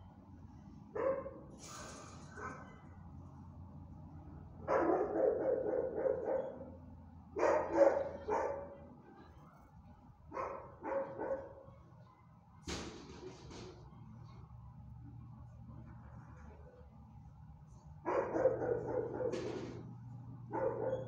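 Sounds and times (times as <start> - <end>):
dogs barking: 1.0 - 1.4, 4.6 - 6.8, 7.4 - 8.8, 10.3 - 11.7, 18.0 - 19.8, 20.4 - 21.0.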